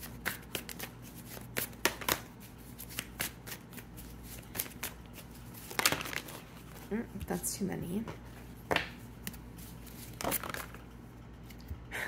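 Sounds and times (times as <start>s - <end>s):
cards being shuffled: 0.0s - 6.9s, 8.4s - 11.6s.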